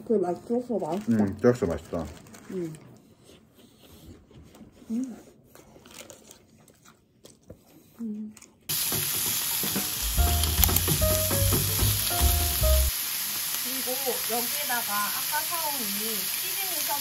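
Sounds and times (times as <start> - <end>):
stirring knocks against a pan: 8.7 - 12.4
food sizzling in a pan: 8.7 - 17.0.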